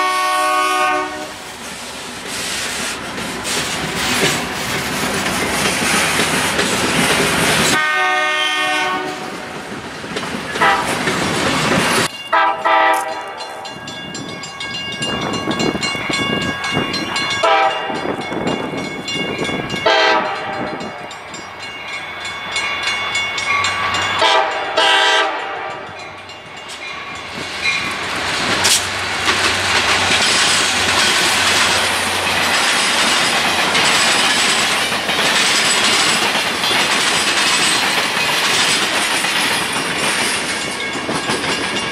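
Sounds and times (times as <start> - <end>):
locomotive horn blasts: 0.0 - 1.4, 7.8 - 9.4, 10.6 - 11.0, 12.3 - 13.4, 17.4 - 18.0, 19.8 - 21.0, 24.2 - 26.0
freight train cars rolling: 0.0 - 41.9
train wheels clicking over rails: 1.3 - 7.8, 8.6 - 12.2, 25.6 - 41.9.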